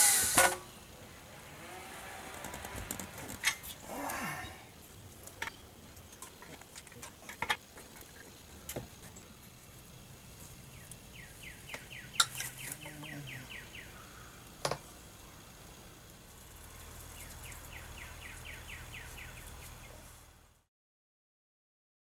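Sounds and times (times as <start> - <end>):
quick evenly spaced ticks: 0.0 - 19.9
pipe fittings clicking and knocking: 14.6 - 14.9.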